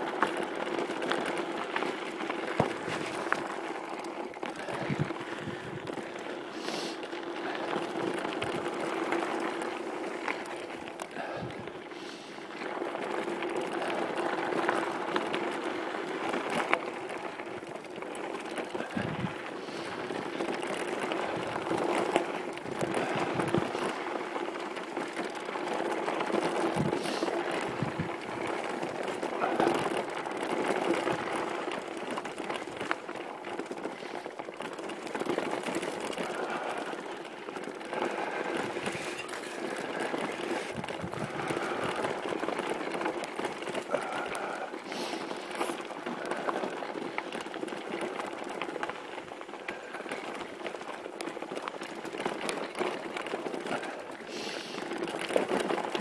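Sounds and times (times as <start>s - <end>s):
bike tyres on rocky trail: 0.0s - 56.0s
bike knocks and rattles: 2.2s - 5.7s.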